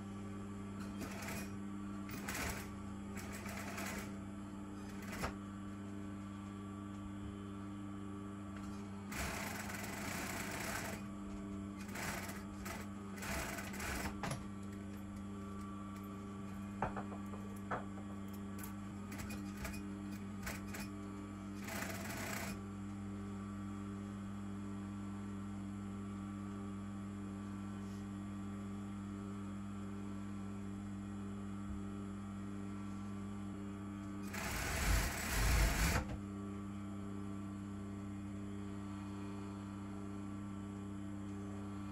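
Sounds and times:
electrical hum: 0.0s - 41.9s
sewing machine stitching: 0.9s - 1.5s, 2.1s - 4.1s, 9.1s - 11.0s, 11.8s - 14.3s, 21.6s - 22.6s, 34.3s - 36.1s.

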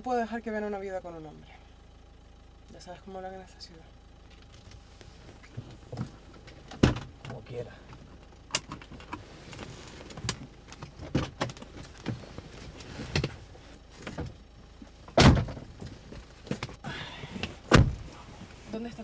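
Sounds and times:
car door shutting thump: 6.7s - 7.2s, 15.1s - 15.9s, 17.4s - 18.2s.

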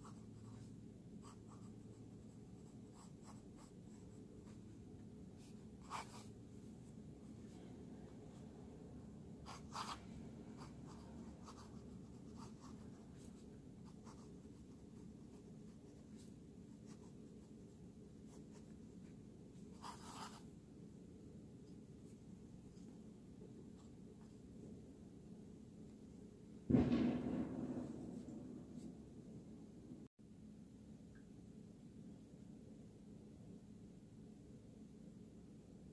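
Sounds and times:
pen nib scratching on paper: 5.4s - 6.4s, 9.4s - 20.5s.

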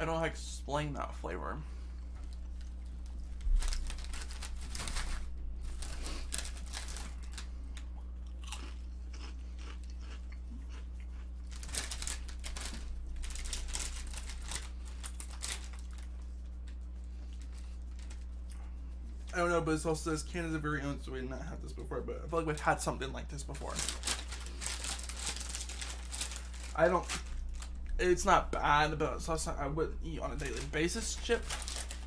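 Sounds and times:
low electrical hum: 0.0s - 32.0s
crunching potato chips: 2.3s - 18.8s, 22.4s - 28.0s, 30.2s - 32.0s.

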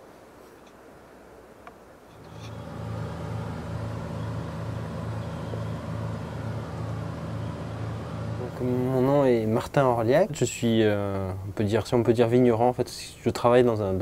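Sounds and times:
motor engine humming: 2.2s - 9.8s.

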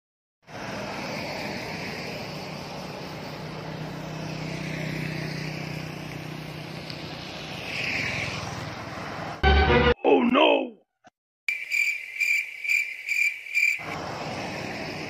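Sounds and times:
motorbike engines approaching: 0.4s - 9.4s, 13.8s - 15.0s
road noise hum: 0.4s - 9.8s, 11.5s - 15.0s.

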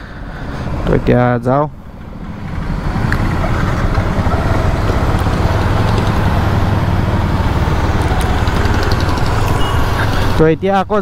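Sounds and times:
motorcycle engine running: 2.2s - 10.4s.

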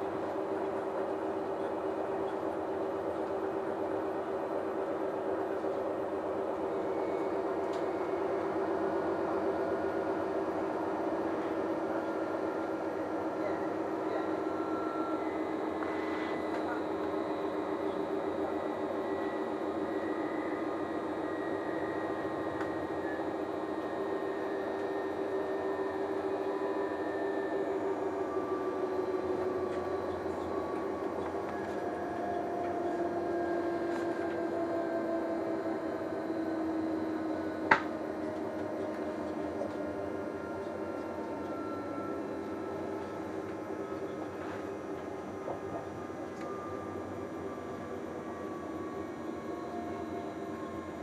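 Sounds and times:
faint whining tones: 0.0s - 51.0s
train cabin running noise: 0.0s - 51.0s.

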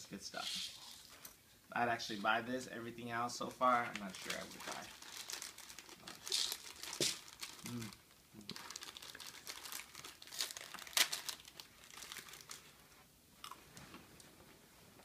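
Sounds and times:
plastic wrapper crinkling: 3.8s - 12.7s.

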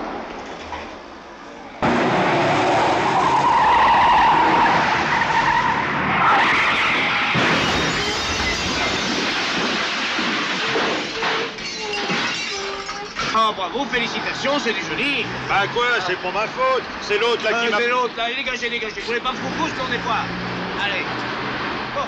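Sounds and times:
car tyres screeching in a skid: 1.8s - 16.9s.

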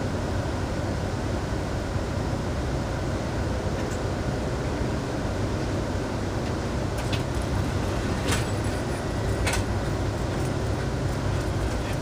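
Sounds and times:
train running noise inside car: 0.0s - 12.0s
sharp clicks of train wheels: 7.0s - 12.0s.

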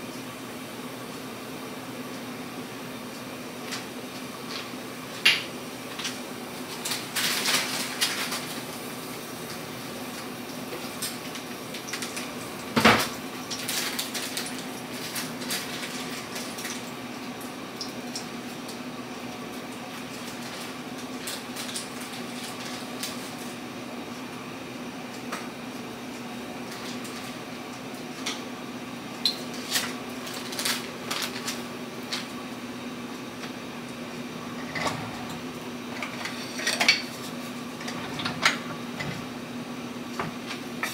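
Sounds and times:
kitchenware rattling clatter: 37.8s - 39.3s.

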